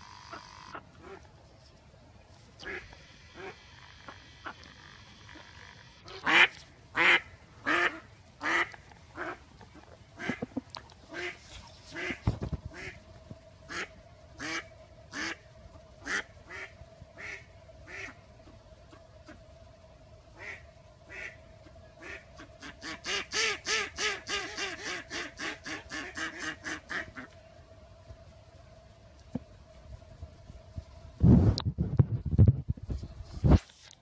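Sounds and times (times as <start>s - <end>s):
duck quacking: 0.1s - 1.3s, 2.6s - 9.4s, 10.2s - 13.0s, 13.7s - 15.4s, 16.0s - 18.6s, 20.4s - 27.3s.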